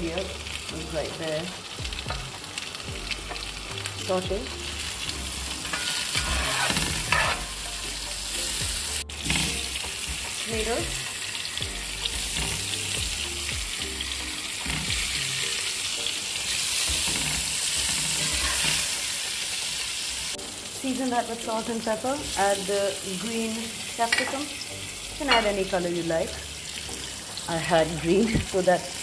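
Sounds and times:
vegetables sizzling in a frying pan: 0:00.0 - 0:29.0
spoon scraping a pan: 0:04.8 - 0:10.4, 0:16.5 - 0:19.2, 0:25.2 - 0:25.6.

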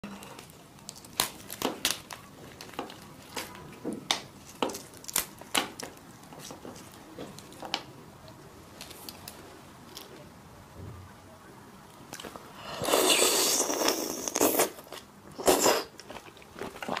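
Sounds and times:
prawn shell cracking: 0:00.4 - 0:07.8.

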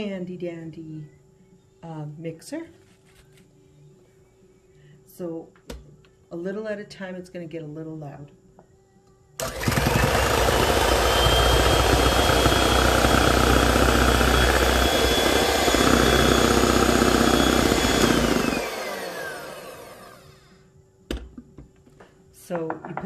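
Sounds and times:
electric hand mixer whining: 0:09.4 - 0:20.5.

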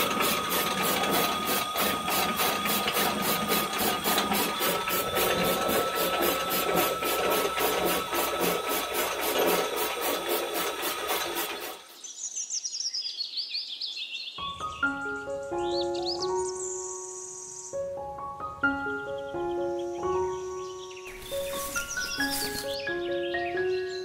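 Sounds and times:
small motor whine: 0:00.0 - 0:12.1, 0:21.1 - 0:22.8
high falling chirps: 0:21.1 - 0:22.9.

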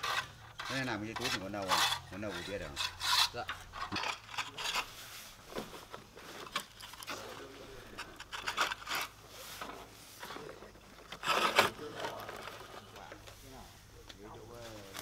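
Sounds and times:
tiles scraping and knocking: 0:00.0 - 0:04.9, 0:07.9 - 0:09.2.

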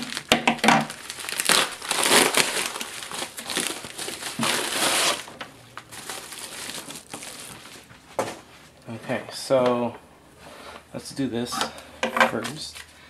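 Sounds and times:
padded envelope crinkling: 0:00.0 - 0:08.3.

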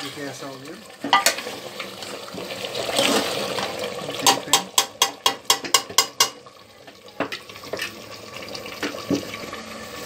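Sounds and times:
spoon stirring sizzling gravy: 0:00.0 - 0:09.9
metal knocking on pot: 0:04.2 - 0:06.4.

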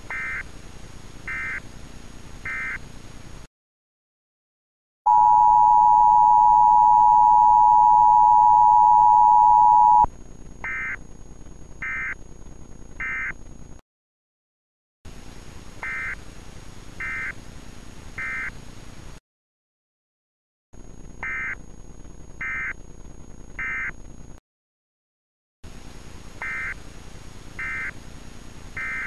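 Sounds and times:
digital data tone bursts: 0:05.1 - 0:10.1
two-tone alert signal: 0:05.1 - 0:10.1
faint hiss: 0:15.1 - 0:19.2, 0:25.7 - 0:29.0.

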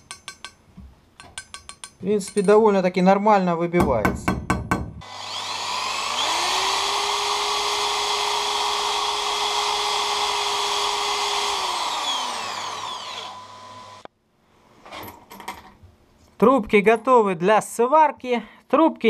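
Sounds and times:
electric drill whining: 0:05.0 - 0:14.1.

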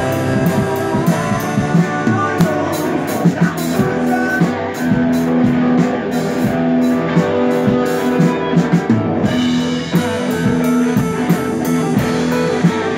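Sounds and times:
drum kit beat: 0:00.0 - 0:12.9
electric guitar: 0:00.0 - 0:12.9.

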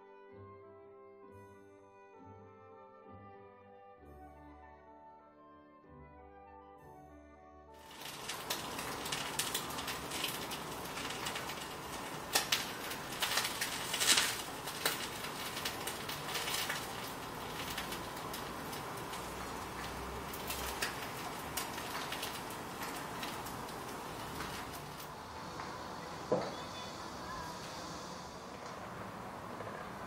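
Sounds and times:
steady hiss: 0:07.8 - 0:30.0.

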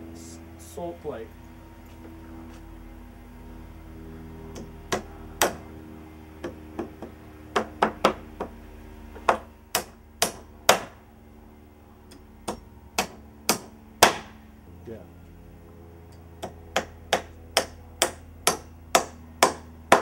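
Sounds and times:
hammer striking nails into wood: 0:04.5 - 0:05.6, 0:06.4 - 0:08.5, 0:09.2 - 0:11.0, 0:12.4 - 0:14.3, 0:16.4 - 0:20.0.

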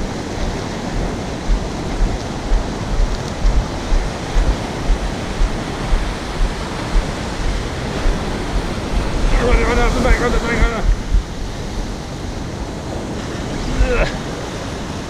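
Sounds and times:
surf breaking on beach: 0:00.0 - 0:15.0
wind buffeting microphone: 0:00.0 - 0:15.0.

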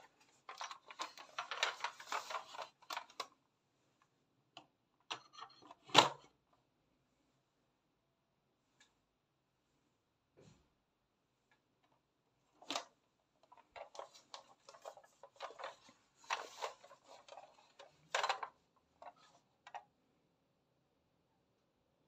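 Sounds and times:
plastic toy and cardboard box handled: 0:00.0 - 0:03.4, 0:04.0 - 0:06.4, 0:12.5 - 0:19.9.

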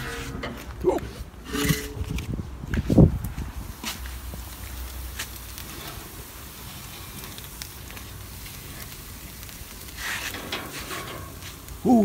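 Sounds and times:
food sizzling on a grill: 0:03.5 - 0:12.0.

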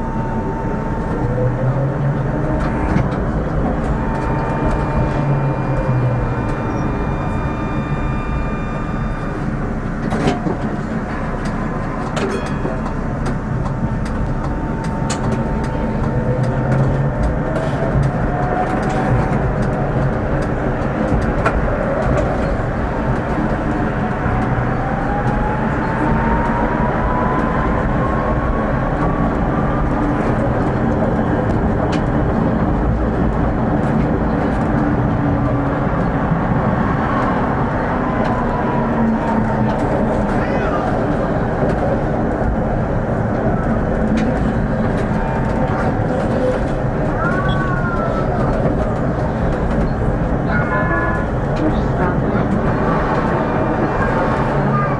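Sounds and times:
rising motor whine: 0:00.0 - 0:12.2
tram wheels rumbling on rails: 0:00.0 - 0:54.9.

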